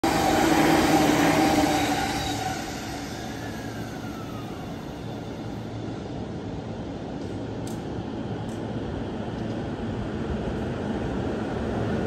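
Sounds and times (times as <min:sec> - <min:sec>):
falling whine: 0:00.0 - 0:07.0
electric train passing: 0:00.0 - 0:12.0
standing train humming: 0:00.0 - 0:12.0.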